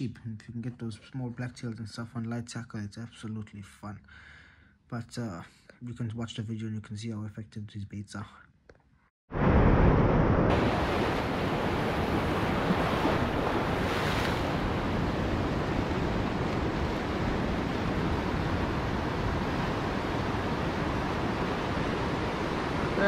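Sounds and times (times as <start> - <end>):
ocean surf over rocks: 9.4 - 23.0
wind buffeting microphone: 9.5 - 23.0.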